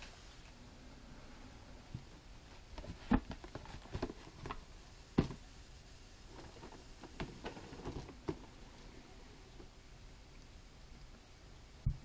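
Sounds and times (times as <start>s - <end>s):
cardboard boxes knocking: 5.2s - 5.4s.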